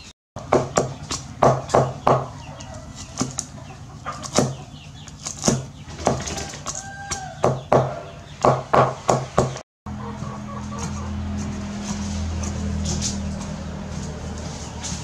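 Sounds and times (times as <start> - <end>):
cleaver chopping on wooden block: 0.4 - 3.5, 4.2 - 9.6.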